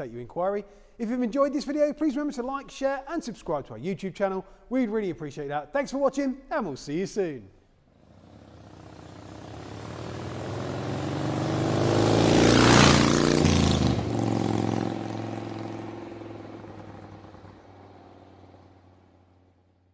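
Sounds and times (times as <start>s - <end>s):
vehicle passing by: 8.0s - 19.5s.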